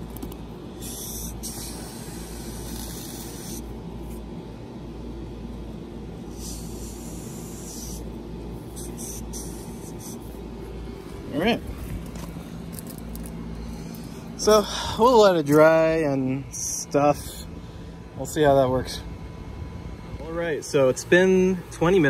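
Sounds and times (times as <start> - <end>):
foam sealant spraying: 0.0 - 4.2, 6.3 - 8.1, 8.7 - 10.4.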